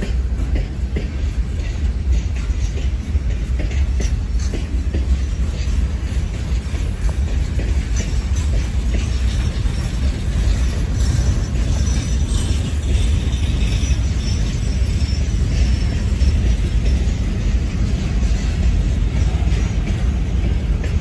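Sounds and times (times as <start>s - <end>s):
train wheels rumbling on rails: 0.0s - 21.0s
high wheel squeal: 7.9s - 17.4s.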